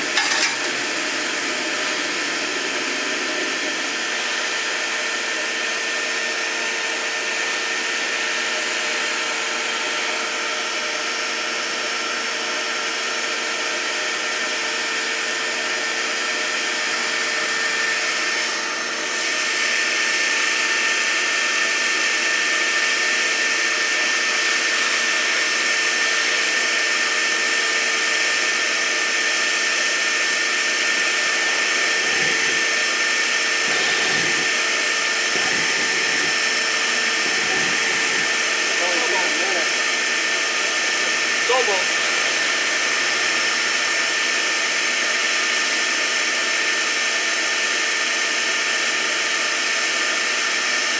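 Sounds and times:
shop vacuum motor whine: 0:00.0 - 0:50.9.

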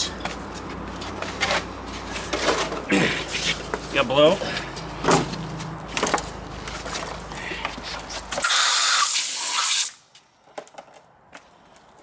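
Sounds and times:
compressed air hiss: 0:08.4 - 0:10.0.

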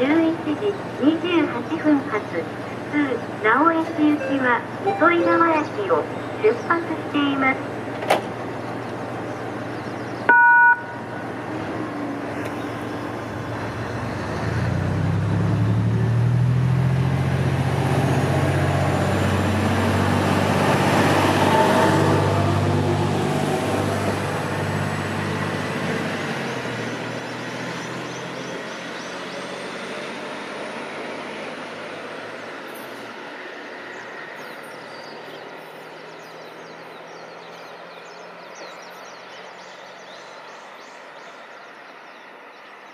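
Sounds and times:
short electronic beep: 0:04.1 - 0:05.4, 0:10.3 - 0:11.0
heavy vehicle engine passing: 0:11.2 - 0:32.6.

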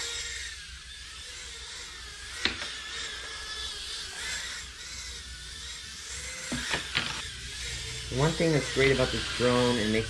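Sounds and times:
small drone motors whining: 0:00.0 - 0:10.0.

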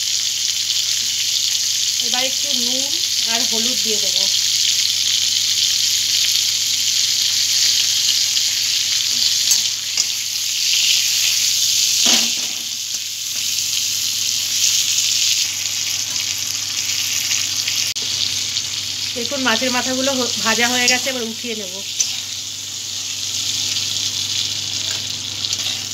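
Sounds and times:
fish frying in oil: 0:00.0 - 0:25.9
metal spatula scraping pan: 0:24.8 - 0:25.9.

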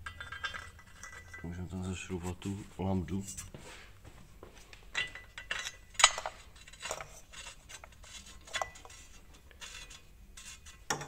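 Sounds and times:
metal clinks and scrapes: 0:00.0 - 0:02.4, 0:04.9 - 0:11.0.

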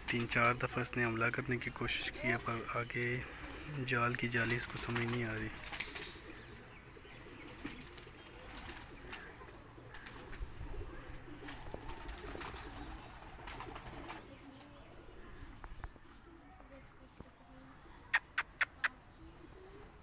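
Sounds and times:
pigeons cooing: 0:01.9 - 0:16.7
short sharp clicks: 0:18.1 - 0:19.0.

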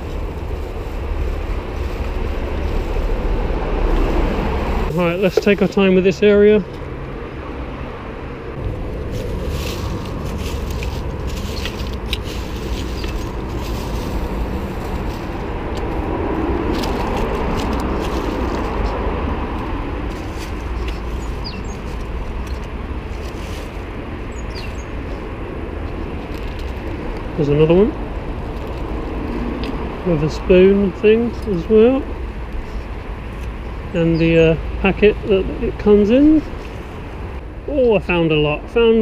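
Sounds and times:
footsteps in dead leaves: 0:00.0 - 0:05.9, 0:08.6 - 0:27.4
road traffic rumble: 0:00.0 - 0:39.0.

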